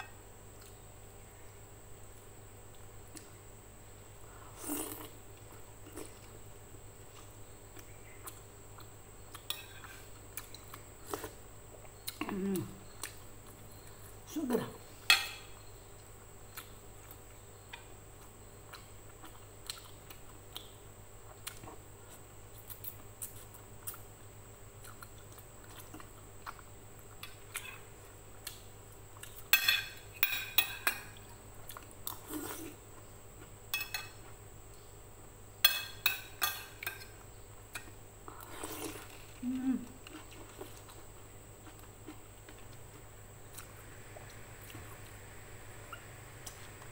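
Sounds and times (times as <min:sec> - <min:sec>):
chewing: 0:07.0 - 0:14.1, 0:16.0 - 0:24.2, 0:24.8 - 0:28.6, 0:40.0 - 0:45.2
slurping noodles: 0:38.4 - 0:39.2.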